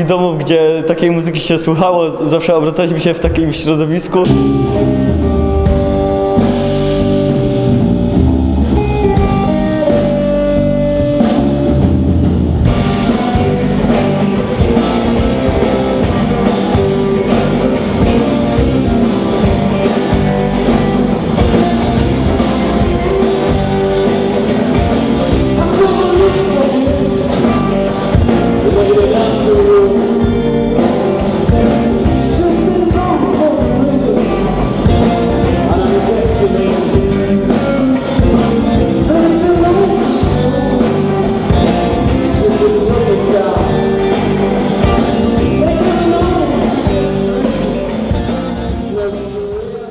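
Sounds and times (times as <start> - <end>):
drums: 0.0 - 49.9
bass guitar: 3.2 - 49.9
electric guitar: 4.2 - 49.9
man singing: 24.7 - 49.9.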